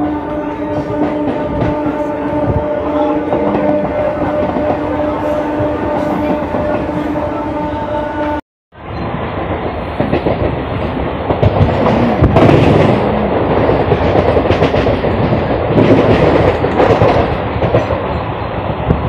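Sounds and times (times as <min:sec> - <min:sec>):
train wheels clattering over rails: 0:09.3 - 0:19.0.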